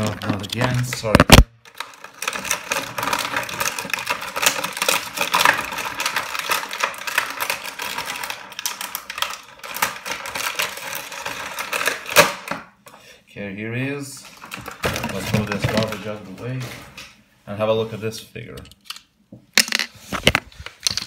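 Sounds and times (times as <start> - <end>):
packaging clicks crackles and rustles: 0.0 - 12.7, 14.2 - 17.1.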